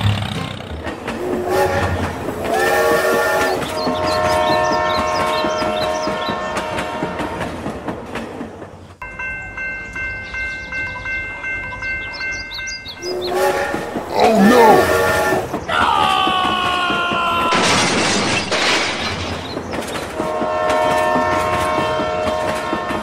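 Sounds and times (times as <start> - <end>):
rattling clickety-clack: 0.2 - 2.6, 16.3 - 23.0
toy train whistle: 1.3 - 6.9, 13.0 - 15.5.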